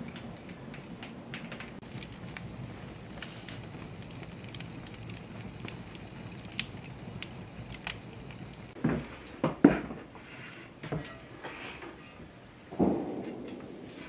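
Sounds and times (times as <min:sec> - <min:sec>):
wood fire crackling: 0:00.0 - 0:14.0.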